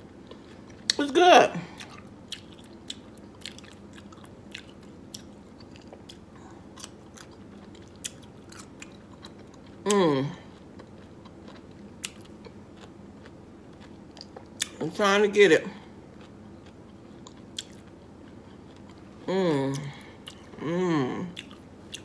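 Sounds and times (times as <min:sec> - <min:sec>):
person chewing: 0:01.7 - 0:14.8, 0:15.9 - 0:22.0
person humming: 0:09.8 - 0:10.5, 0:19.3 - 0:21.4.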